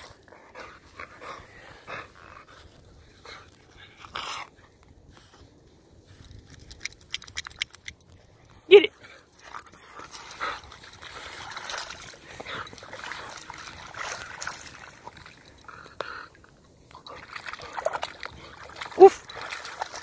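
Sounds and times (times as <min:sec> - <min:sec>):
dog splashing in water: 0:10.0 - 0:15.5, 0:17.0 - 0:20.0.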